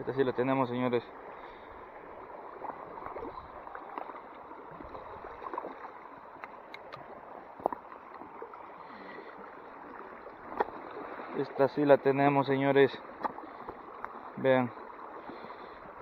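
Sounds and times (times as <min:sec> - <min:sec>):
creek water running over rocks: 0:00.0 - 0:16.0
fish splashing in shallows: 0:01.3 - 0:11.6.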